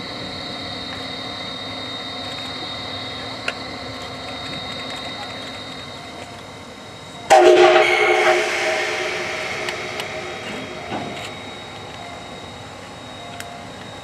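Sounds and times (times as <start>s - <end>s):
steam whistle chord with hiss: 7.3s - 12.6s.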